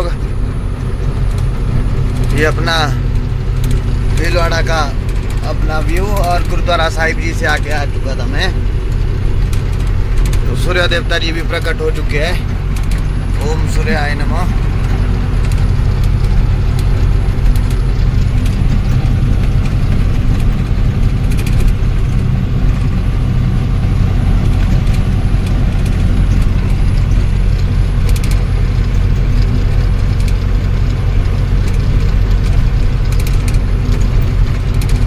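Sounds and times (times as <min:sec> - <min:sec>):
diesel truck engine cruising: 0:00.0 - 0:35.0.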